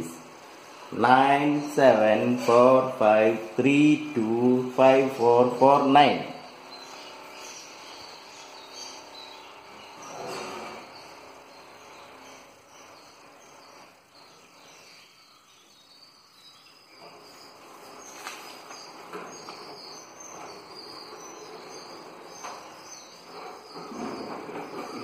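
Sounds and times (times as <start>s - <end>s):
faint high-pitched chirping: 0.0s - 25.0s.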